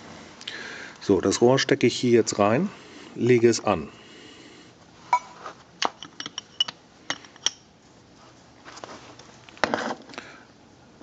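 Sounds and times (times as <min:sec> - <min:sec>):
metal taps and clinks: 0:05.1 - 0:07.6.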